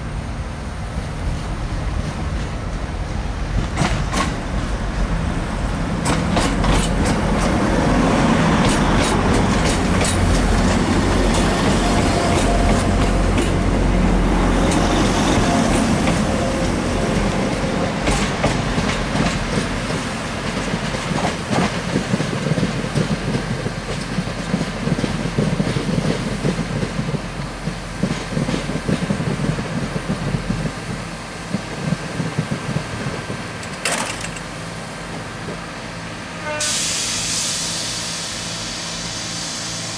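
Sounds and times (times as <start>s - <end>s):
diesel train engines working: 0.0s - 39.9s
wheels clicking over rail joints: 6.0s - 7.6s, 8.6s - 13.6s, 32.7s - 34.5s.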